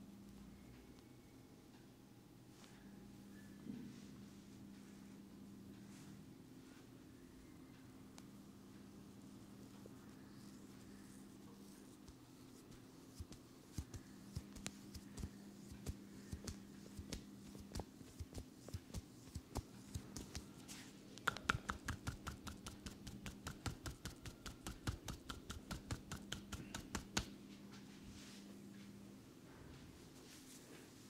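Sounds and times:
rapid crisp massage taps: 0:11.6 - 0:20.6, 0:21.2 - 0:27.4
soft massage taps on skin: 0:12.0 - 0:27.4.

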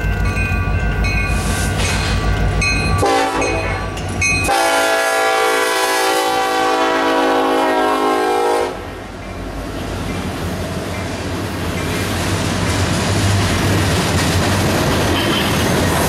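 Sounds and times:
train deep rumble: 0:00.0 - 0:16.0
train air horn blast: 0:03.0 - 0:03.8, 0:04.5 - 0:09.0.

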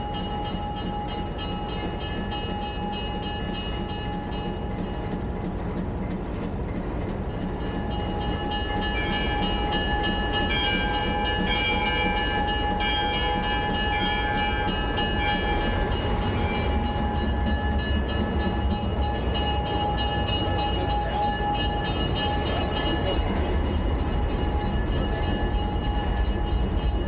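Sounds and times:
steam locomotive rolling past: 0:00.0 - 0:27.0.

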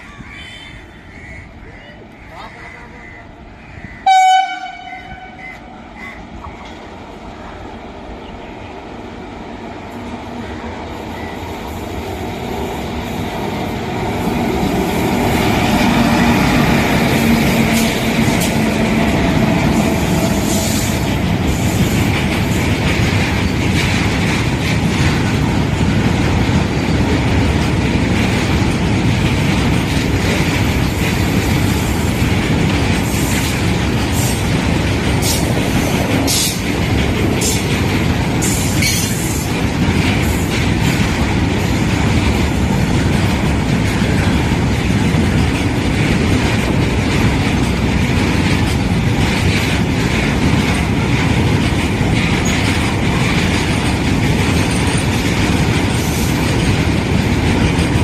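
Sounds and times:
train rumble: 0:00.0 - 0:58.0
locomotive hum: 0:03.4 - 0:58.0
train horn blast: 0:04.0 - 0:05.7
wheels clattering over rail joints: 0:14.0 - 0:58.0.

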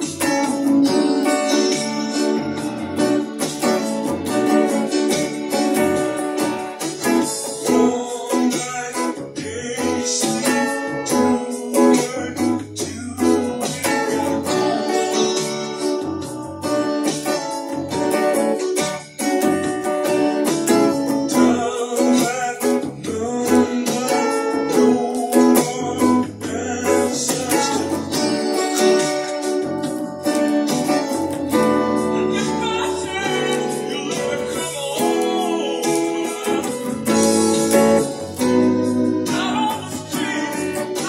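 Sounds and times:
strummed electric guitar: 0:00.0 - 0:41.0.

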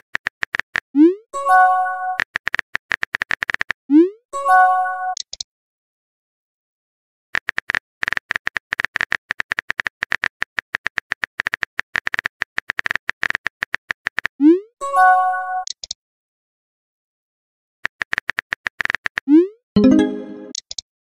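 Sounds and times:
keyboard typing clicks: 0:05.1 - 0:05.4, 0:15.6 - 0:16.0, 0:17.9 - 0:20.8.

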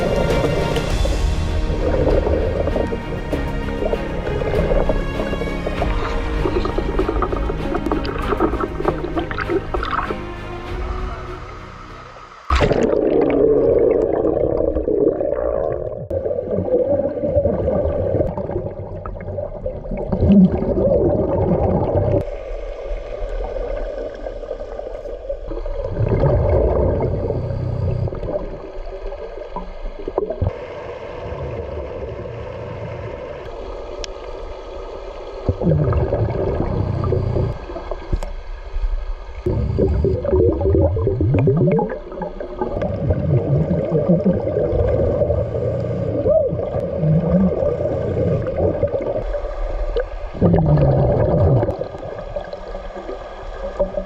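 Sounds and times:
underwater exhaled bubbles gurgling: 0:01.6 - 0:03.1, 0:03.7 - 0:10.1, 0:12.5 - 0:54.0
steady hum: 0:22.2 - 0:53.8.

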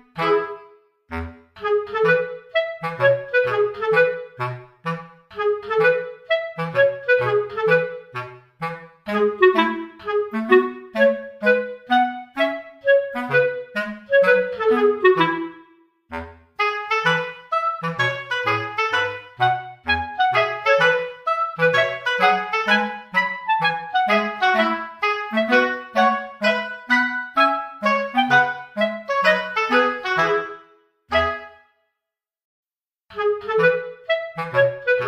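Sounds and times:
bouncy woodwind tune: 0:00.0 - 0:31.9, 0:33.1 - 0:35.0.

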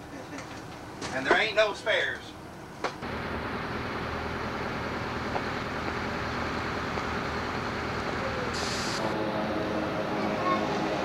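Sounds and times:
vehicle engine and road noise: 0:00.0 - 0:11.0
short hiss: 0:08.5 - 0:09.0.

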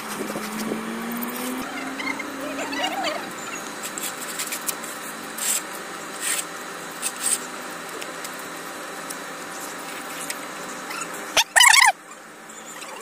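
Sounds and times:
outdoor background noise: 0:00.0 - 0:13.0
tool scraping on concrete: 0:03.8 - 0:07.4.

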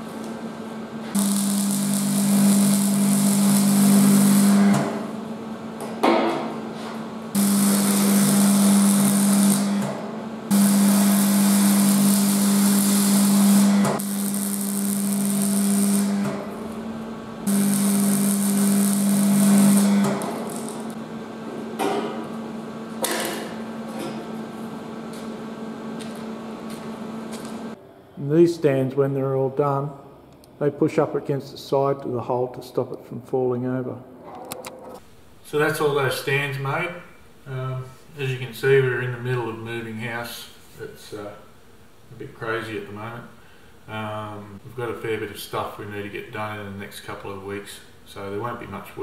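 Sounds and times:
arc welding buzz and crackle: 0:00.0 - 0:27.8.

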